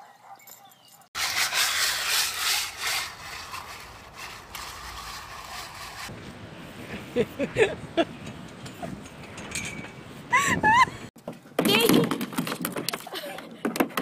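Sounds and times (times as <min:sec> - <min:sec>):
plastic toy scraping on wet asphalt: 0:01.2 - 0:06.1.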